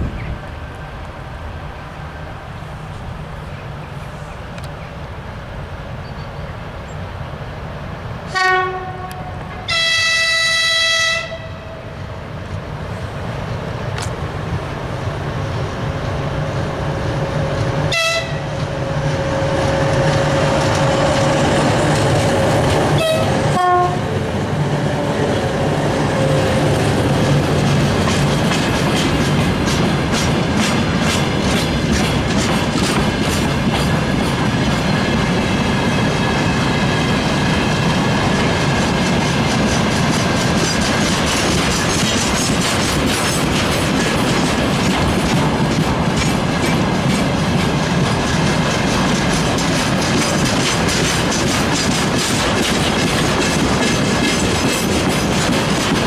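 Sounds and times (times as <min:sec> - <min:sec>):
locomotive horn blasts: 0:08.3 - 0:11.8, 0:17.9 - 0:18.5, 0:23.0 - 0:24.1
wheels clattering over rail joints: 0:26.2 - 0:56.0.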